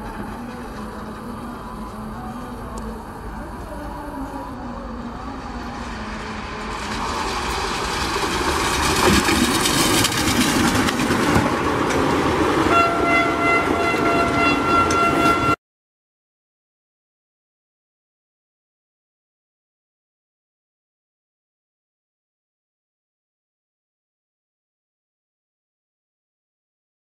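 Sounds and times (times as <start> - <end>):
train rumbling past: 0.0 - 15.6
train horn blast: 12.6 - 15.6.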